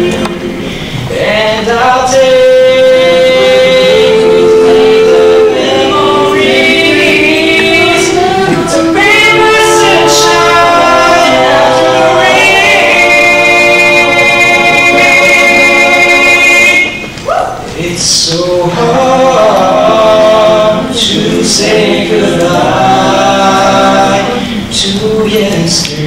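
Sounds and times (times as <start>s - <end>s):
backing vocal harmony chords: 0.0s - 26.0s.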